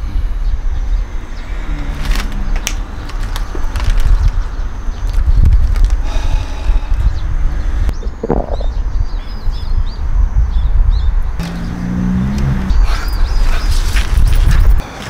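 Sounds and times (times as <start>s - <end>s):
small birds chirping: 2.8s - 14.8s
steady low rumble: 2.9s - 11.4s
brief low hum: 7.9s - 8.8s.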